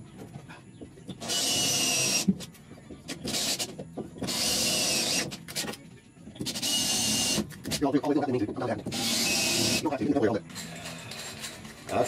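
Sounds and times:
cordless drill drilling metal: 1.2s - 2.3s, 3.3s - 5.4s, 6.5s - 7.5s, 8.9s - 9.9s.

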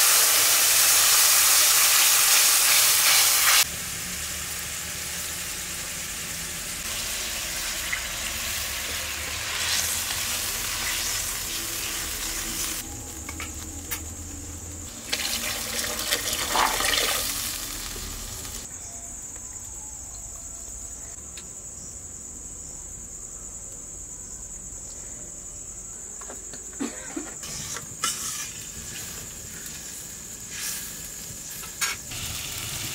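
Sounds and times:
spices sizzling in hot oil: 0.0s - 18.7s, 27.4s - 32.9s.

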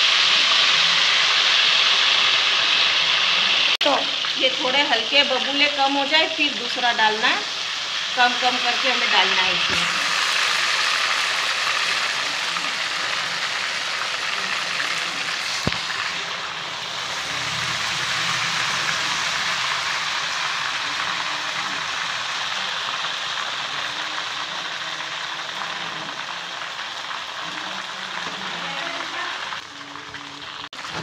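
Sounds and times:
batter sizzling in hot oil: 0.0s - 31.0s.

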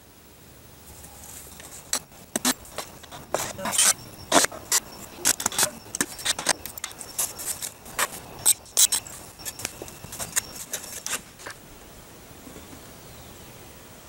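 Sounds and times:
quiet hiss: 0.0s - 14.0s
shovel scraping in sand: 1.0s - 11.6s.

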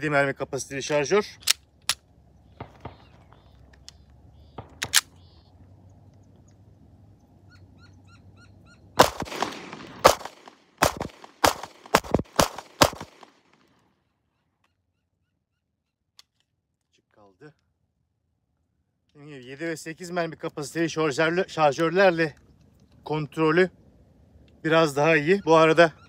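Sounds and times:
pistol metallic clicks: 1.4s - 2.0s, 2.6s - 5.2s
pistol shots with echo: 2.6s - 3.5s, 4.5s - 5.1s, 9.0s - 13.5s.

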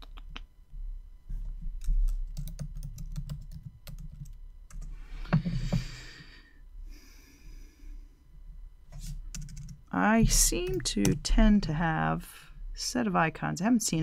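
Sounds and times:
typing on computer keyboard: 1.8s - 4.9s, 9.3s - 9.8s.

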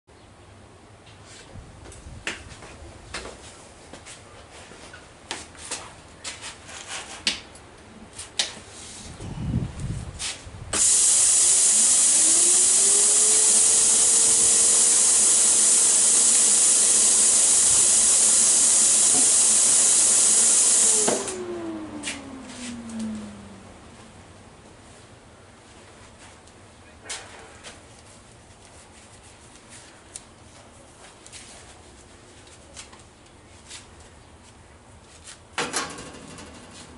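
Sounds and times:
compressed air hissing through torch: 10.7s - 21.5s
rising and falling hum: 20.9s - 25.0s.

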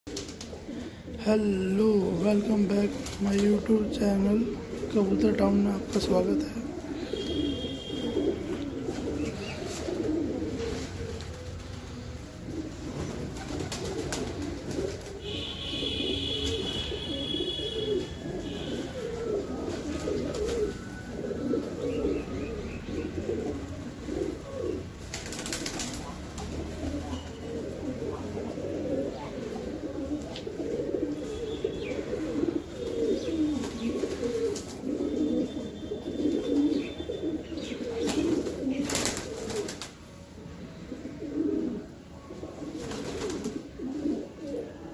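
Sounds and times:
pigeons cooing: 0.1s - 44.9s.

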